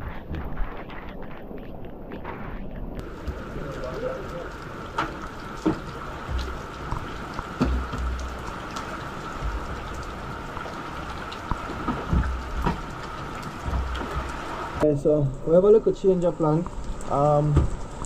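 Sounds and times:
heavy rain on dock and water: 0:00.0 - 0:18.0
sharp knocks: 0:05.0 - 0:08.4, 0:11.7 - 0:12.9.

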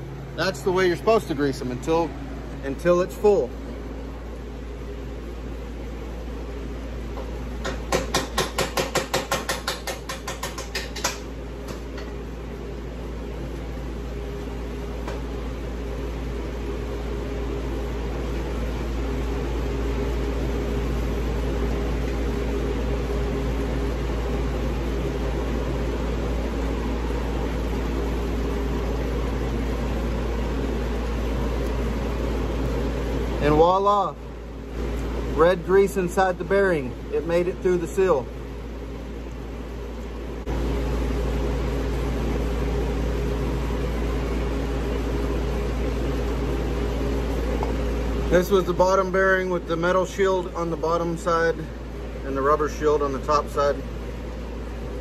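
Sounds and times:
steady mechanical hum: 0:00.0 - 0:55.0
sharp metal taps of hand tools: 0:07.6 - 0:12.1.

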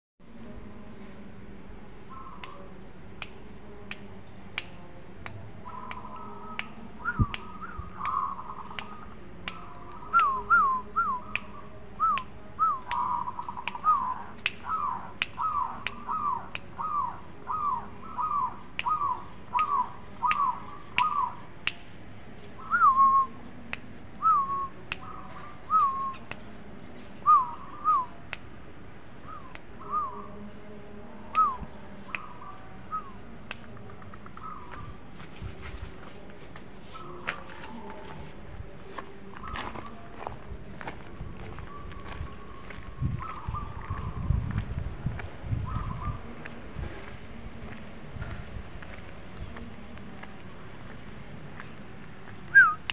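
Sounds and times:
dove cooing: 0:05.6 - 0:11.3, 0:12.6 - 0:21.4, 0:24.2 - 0:26.2, 0:31.4 - 0:35.5, 0:41.2 - 0:44.5, 0:45.5 - 0:46.6.

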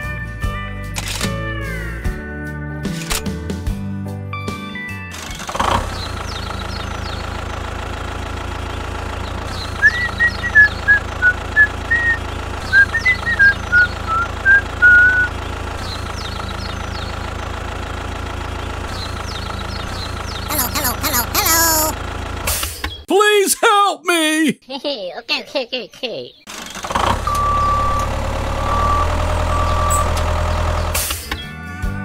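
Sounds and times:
tractor engine idling: 0:05.9 - 0:22.6.

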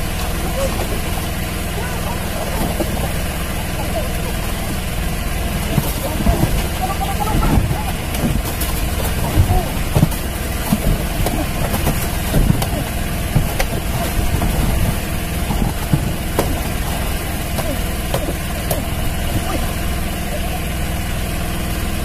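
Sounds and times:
water splashing: 0:00.0 - 0:20.9
boat engine idling: 0:00.0 - 0:22.0
sharp knocks: 0:07.4 - 0:19.8.

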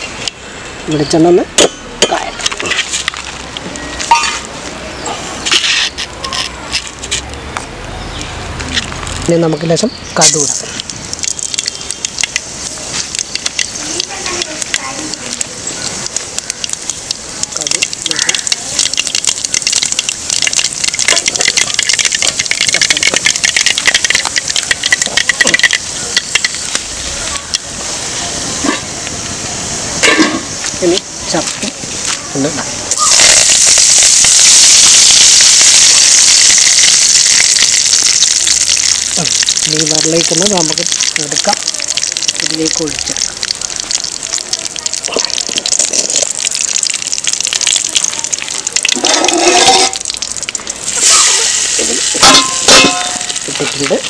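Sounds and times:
oil sizzling: 0:00.0 - 0:06.2, 0:08.7 - 0:54.0
mustard seeds popping in oil: 0:08.2 - 0:27.7, 0:30.0 - 0:54.0
metal pot lid scraping: 0:49.0 - 0:50.1.

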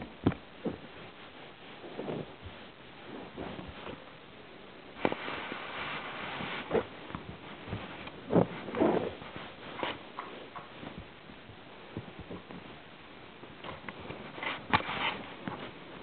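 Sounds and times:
soft thumps: 0:00.0 - 0:01.1
kittens rustling on sofa: 0:00.0 - 0:04.2, 0:04.9 - 0:16.0.

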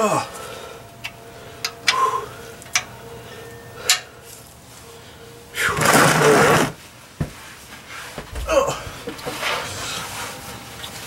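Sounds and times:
man breathing sharply: 0:00.2 - 0:05.8.

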